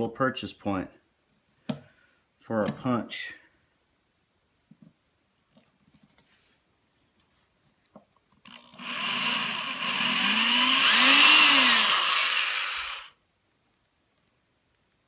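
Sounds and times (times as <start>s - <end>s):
small electric drill running: 8.5s - 13.2s.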